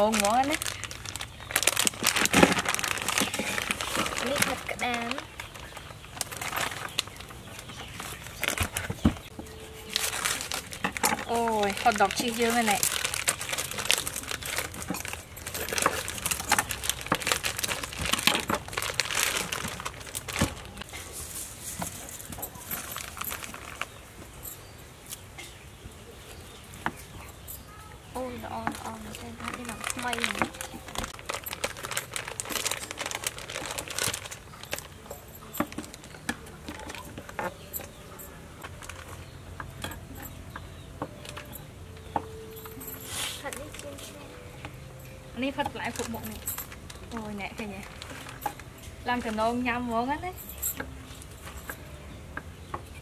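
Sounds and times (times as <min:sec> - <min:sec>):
plastic packaging crinkling and tearing: 0:00.0 - 0:24.0, 0:28.6 - 0:40.4, 0:45.4 - 0:49.5.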